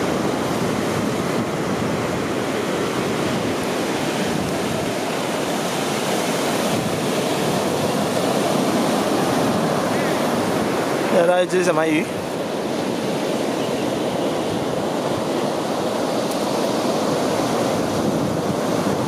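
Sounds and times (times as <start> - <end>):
ocean surf breaking: 0.0 - 19.0.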